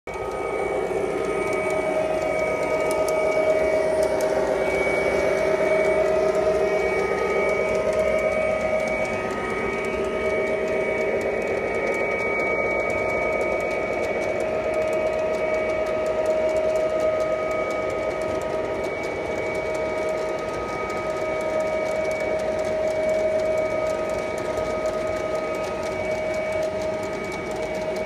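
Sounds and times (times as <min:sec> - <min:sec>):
model train cars rumbling: 0:00.1 - 0:21.6
electric motor whine: 0:00.1 - 0:28.0.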